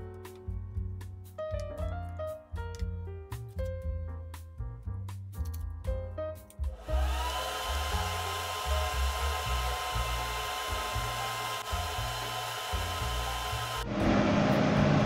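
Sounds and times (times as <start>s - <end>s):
extractor fan running: 6.8s - 15.0s.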